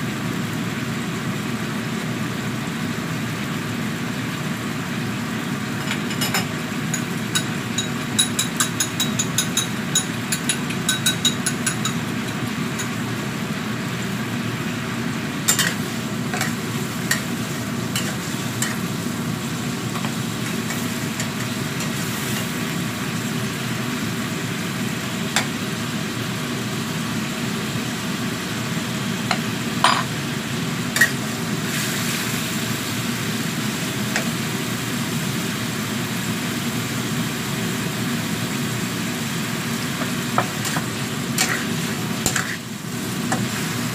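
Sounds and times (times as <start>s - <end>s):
liquid bubbling and sizzling: 0.0s - 43.9s
steady low hum: 5.4s - 34.9s
metal spatula scraping a wok: 15.5s - 17.3s, 17.9s - 18.8s, 40.6s - 42.7s.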